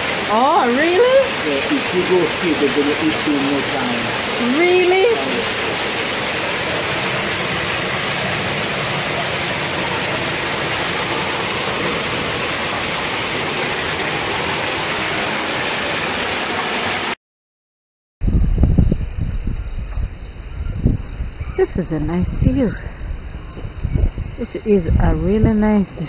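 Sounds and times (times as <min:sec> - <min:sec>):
running water rushing: 0:00.0 - 0:17.2.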